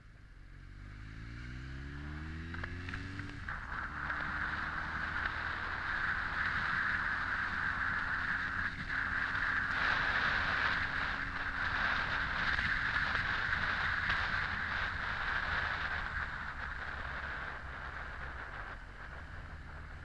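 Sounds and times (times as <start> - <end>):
motorcycle engine running: 0.0 - 20.0
wind over microphone: 2.3 - 20.0.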